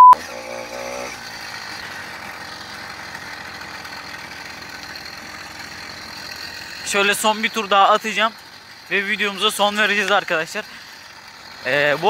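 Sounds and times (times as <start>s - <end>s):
small two-stroke engine buzzing: 0.0s - 12.0s.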